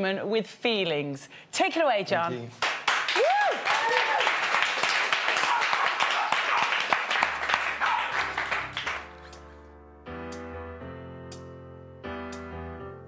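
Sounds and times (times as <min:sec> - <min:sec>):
audience applauding and cheering: 0:02.6 - 0:09.2
sustained keyboard chords: 0:07.3 - 0:13.0.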